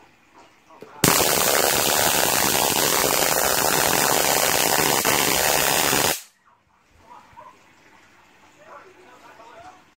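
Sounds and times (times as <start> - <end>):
high-voltage arc crackling buzz: 1.0 - 6.3.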